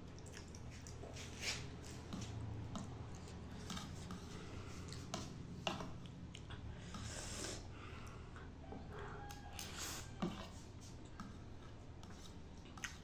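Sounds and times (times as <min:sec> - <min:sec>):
low steady hum: 0:00.0 - 0:13.0
fork stirring noodles: 0:09.0 - 0:13.0.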